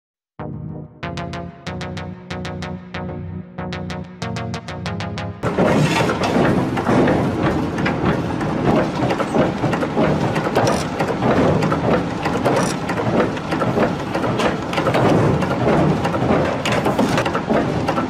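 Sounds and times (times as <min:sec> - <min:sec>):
rumbling clatter: 0:05.4 - 0:18.0.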